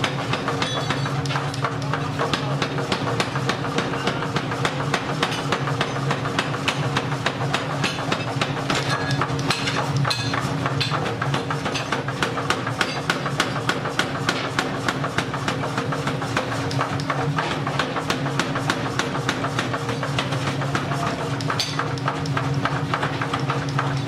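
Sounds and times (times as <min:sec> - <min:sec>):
power hammer pounding metal: 0:00.0 - 0:24.0.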